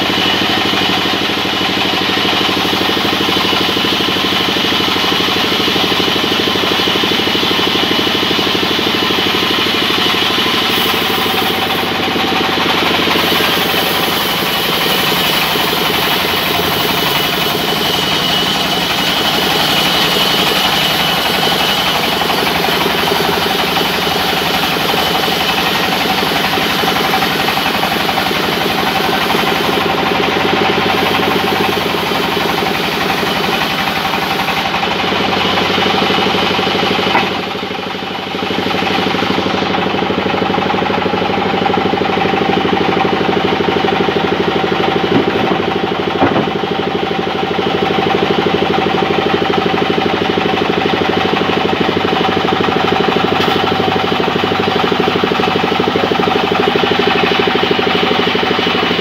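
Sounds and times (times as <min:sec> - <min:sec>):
band sawmill cutting log: 0:00.0 - 0:59.0
sharp knocks: 0:37.1 - 0:37.4, 0:45.1 - 0:46.7.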